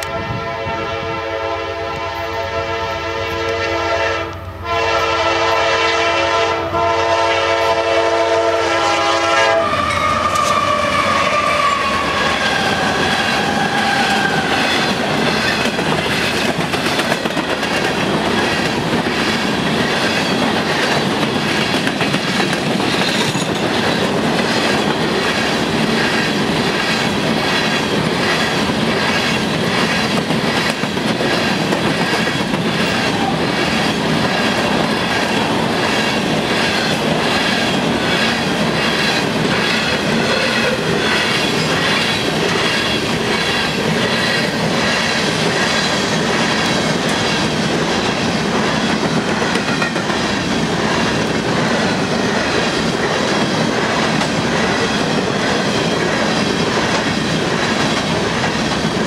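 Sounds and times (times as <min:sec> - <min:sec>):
train wheels clattering over rail joints: 0:12.6 - 0:59.0.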